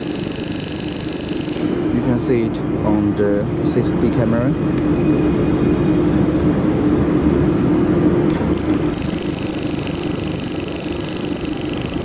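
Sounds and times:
laser firing high-pitched ticks: 0.0s - 1.7s, 8.5s - 12.0s
welding machine and fan hum: 0.0s - 12.0s.

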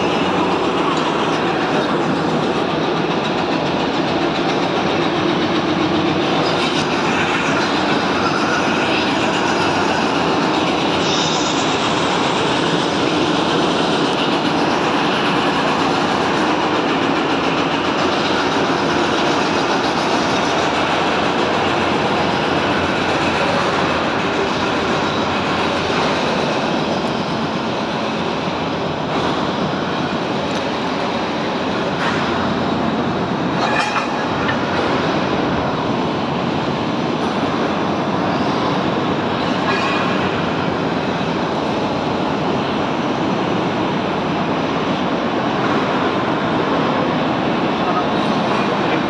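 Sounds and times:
train rumbling: 0.0s - 49.0s.

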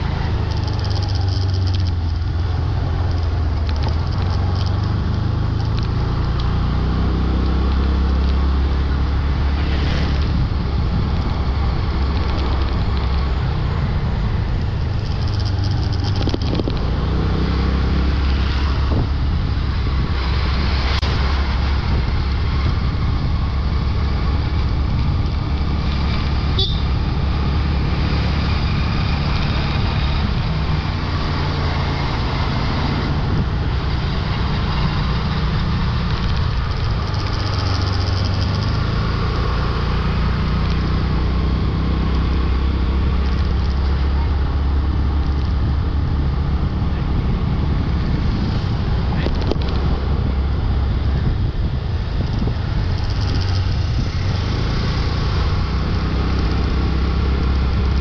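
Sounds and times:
passing traffic: 0.0s - 58.0s
motorbike engine running: 10.3s - 17.2s, 18.6s - 39.0s, 42.2s - 58.0s.

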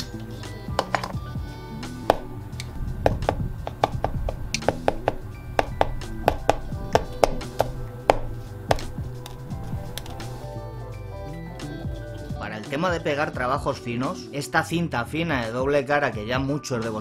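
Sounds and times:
background music: 0.0s - 17.0s
sharp taps on leather: 2.1s - 2.3s, 3.0s - 9.3s.

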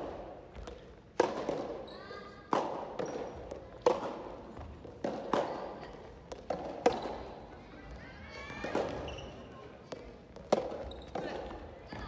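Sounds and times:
tennis ball struck by rackets: 0.1s - 1.8s, 2.5s - 4.4s, 10.4s - 11.2s.

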